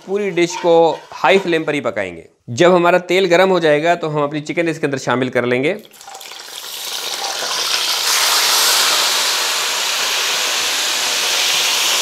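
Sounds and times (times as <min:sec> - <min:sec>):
chicken sizzling in hot oil: 0:05.8 - 0:12.0.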